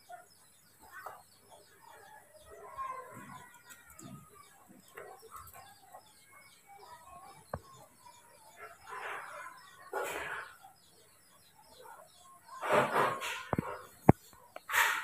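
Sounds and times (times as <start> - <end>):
birds chirping: 0.0 - 15.0
faint chickens clucking: 0.0 - 15.0.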